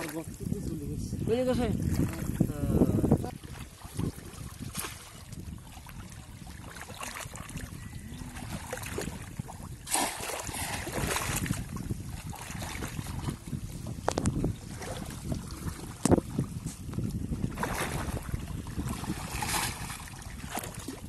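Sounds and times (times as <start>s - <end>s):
water splashing and sloshing: 0.0s - 21.0s
fish traps plunging into water: 6.6s - 11.7s.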